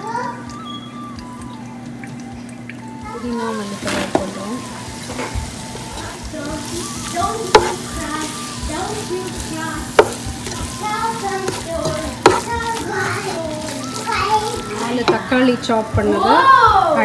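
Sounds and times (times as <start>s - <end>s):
onion mixture sizzling in a pan: 2.9s - 17.0s
wooden spatula stirring: 3.4s - 17.0s
spatula knocking against pan: 6.2s - 15.3s.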